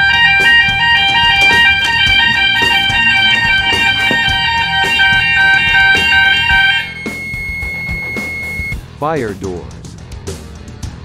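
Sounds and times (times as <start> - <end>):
fire alarm two-tone warble: 0.0 - 8.8
guitar music: 0.0 - 8.8.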